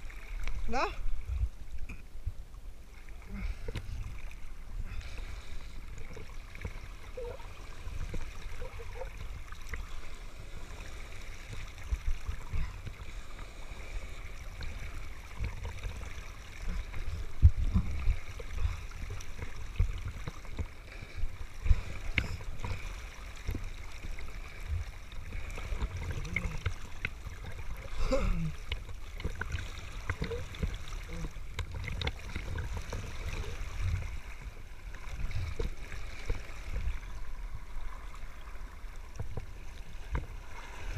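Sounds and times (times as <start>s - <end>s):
sea water rushing and splashing: 0.0s - 40.9s
low rumble on microphone: 14.2s - 40.9s.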